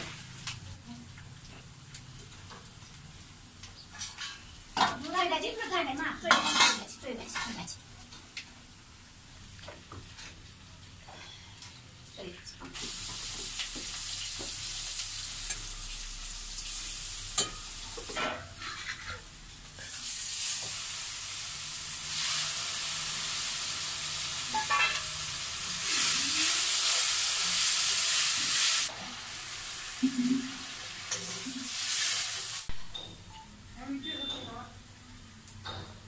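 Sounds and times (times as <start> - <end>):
hot oil sizzling in a wok: 12.0 - 32.8.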